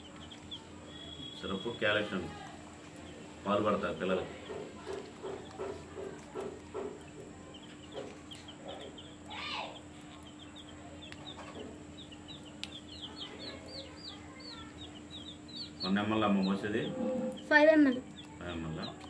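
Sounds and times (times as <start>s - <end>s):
small birds chirping: 0.0s - 19.0s
steady low hum: 0.0s - 19.0s
louder bird call: 15.8s - 17.6s.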